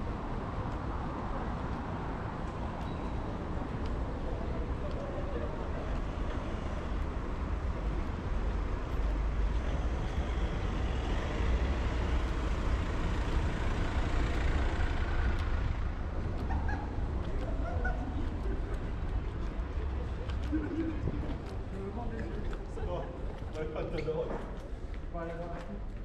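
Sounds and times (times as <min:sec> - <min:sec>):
cars driving on wet road: 0:00.0 - 0:24.9.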